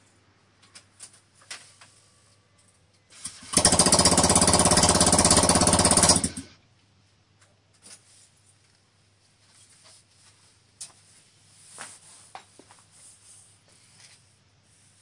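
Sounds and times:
scooter engine popping loudly: 0:03.2 - 0:06.6.

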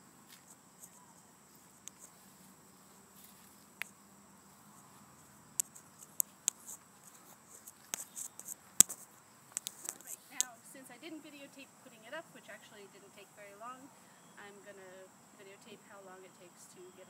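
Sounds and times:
footsteps on dry leaves: 0:02.0 - 0:03.7.

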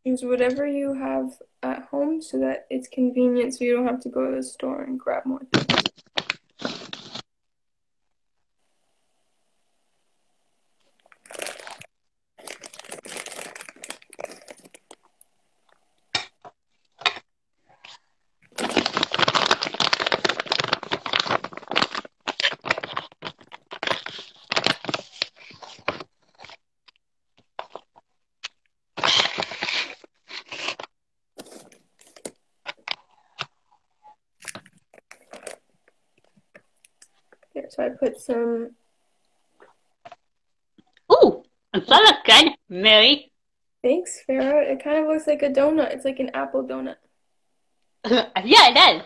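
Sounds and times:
plastic packaging crinkling: 0:05.5 - 0:07.3, 0:10.9 - 0:33.6, 0:34.4 - 0:37.5.

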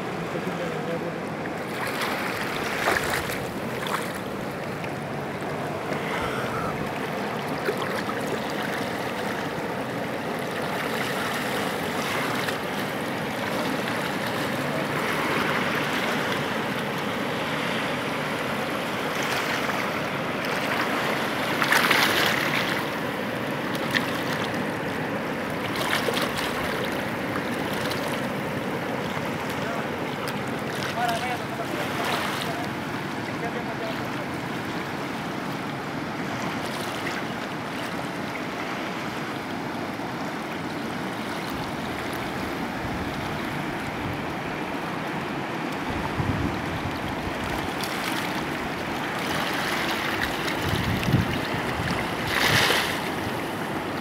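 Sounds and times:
river rushing: 0:00.0 - 0:54.0
water washing around rocks: 0:01.5 - 0:32.6, 0:45.8 - 0:54.0.

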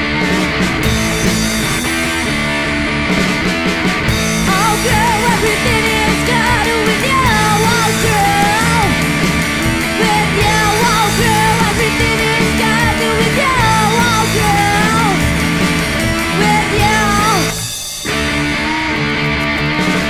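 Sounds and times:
punk band playing: 0:00.0 - 0:20.0
woman singing: 0:04.4 - 0:09.1, 0:09.8 - 0:15.4, 0:16.2 - 0:17.6.

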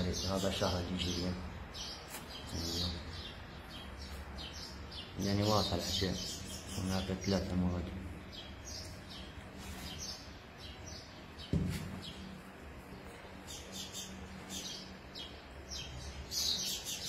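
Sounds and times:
small birds chirping: 0:00.0 - 0:17.0
single knock: 0:11.5 - 0:12.0.

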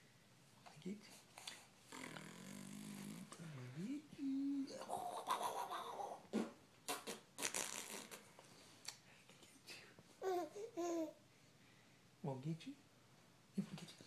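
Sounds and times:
baby laughing: 0:04.8 - 0:06.2.

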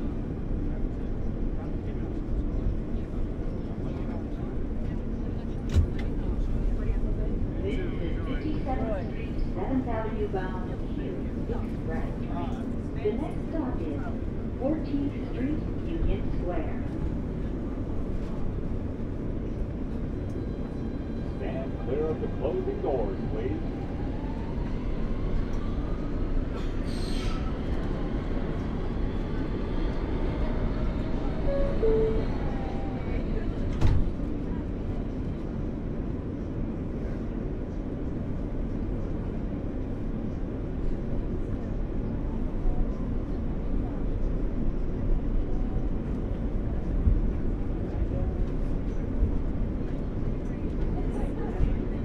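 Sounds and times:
subway train rumble: 0:00.0 - 0:52.0.

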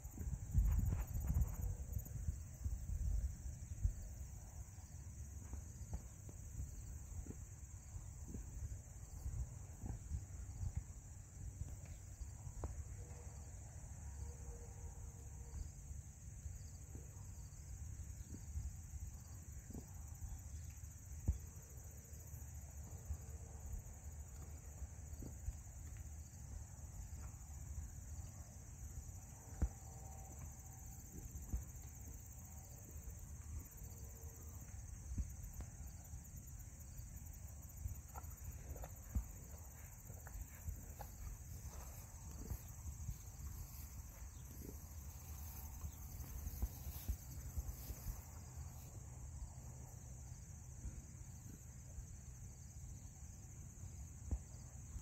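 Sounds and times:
insects chirring: 0:15.5 - 0:55.0.

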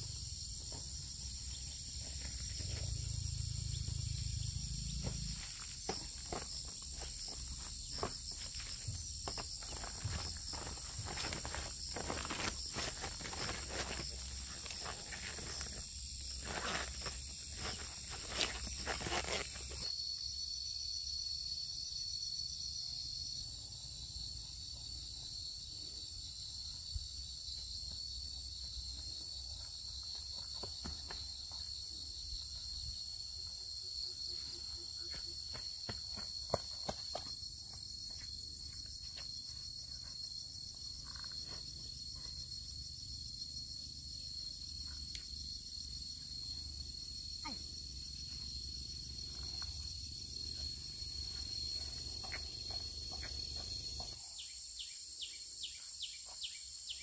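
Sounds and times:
insects shrilling: 0:02.8 - 0:19.9
footsteps on dirt path: 0:05.0 - 0:19.9, 0:35.0 - 0:41.7, 0:49.2 - 0:54.2.

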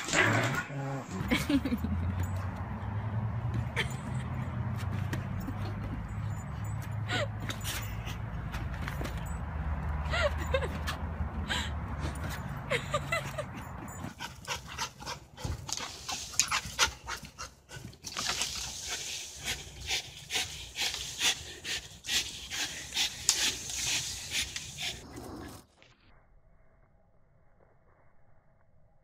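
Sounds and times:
dog panting: 0:13.9 - 0:18.0, 0:18.6 - 0:25.6.

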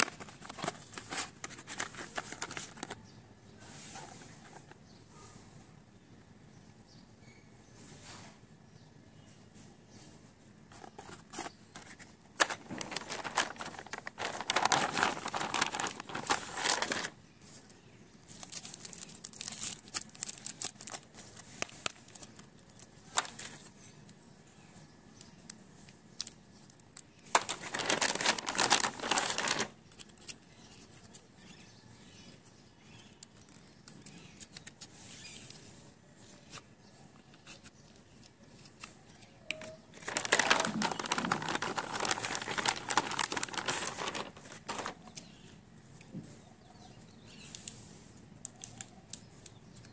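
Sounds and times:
packaging rustling and crinkling: 0:00.0 - 0:03.0, 0:10.7 - 0:17.2, 0:18.2 - 0:23.7, 0:27.2 - 0:30.4, 0:39.5 - 0:45.1.

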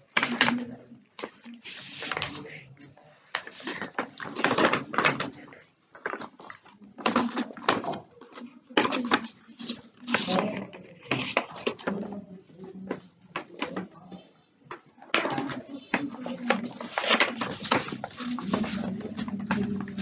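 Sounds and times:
boy speaking quietly: 0:06.8 - 0:20.0
paper rustling and crinkling: 0:15.3 - 0:20.0.

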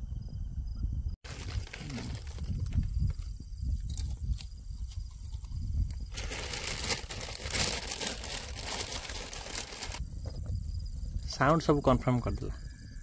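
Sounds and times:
low rumble: 0:00.0 - 0:11.3
campfire crackling: 0:01.2 - 0:10.0.

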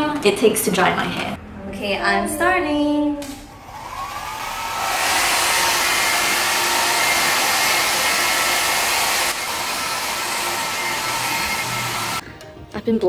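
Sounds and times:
hair dryer running: 0:03.6 - 0:12.2.

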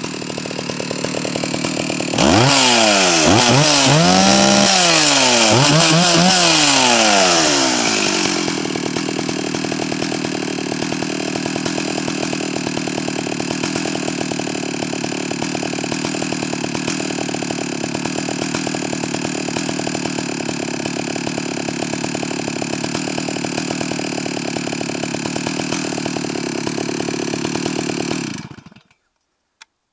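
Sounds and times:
chainsaw engine revving and idling: 0:00.0 - 0:29.0.

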